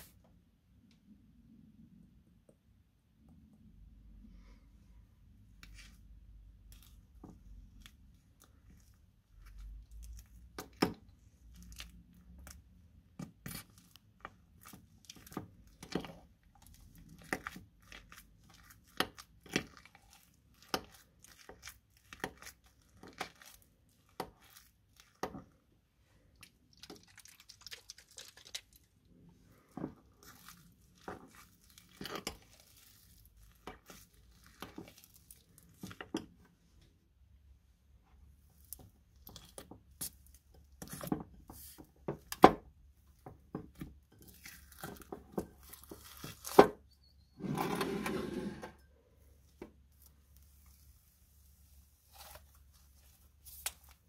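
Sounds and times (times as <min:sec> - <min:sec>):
metal spatula scraping gritty mix: 0:30.2 - 0:36.0.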